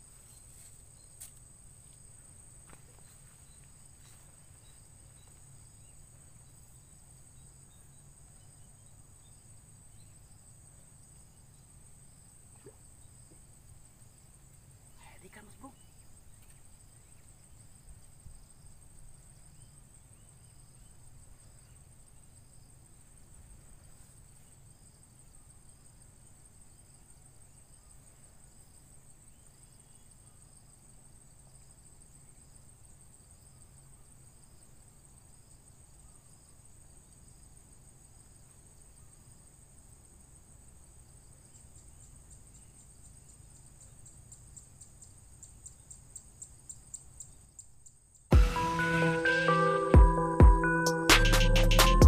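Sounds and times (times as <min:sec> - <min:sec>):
insects chirring: 0:00.0 - 0:52.0
pulsing insect call: 0:41.8 - 0:52.0.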